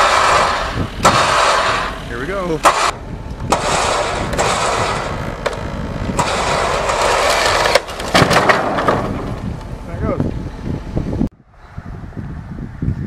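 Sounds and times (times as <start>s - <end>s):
electric winch running: 0.0s - 8.1s.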